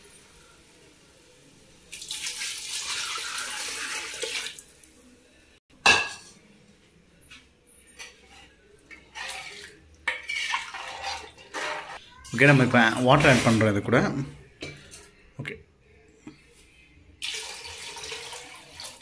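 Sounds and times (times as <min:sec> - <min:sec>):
liquid pouring into pot: 0:01.9 - 0:04.6, 0:17.2 - 0:19.0
ladle stirring in metal pot: 0:07.9 - 0:13.8.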